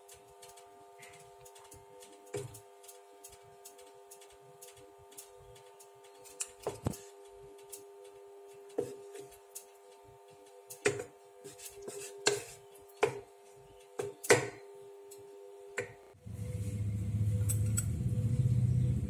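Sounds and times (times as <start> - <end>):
steady hum: 0.0 - 19.0
wooden spatula scraping pan: 11.4 - 12.7
low background music: 16.1 - 19.0.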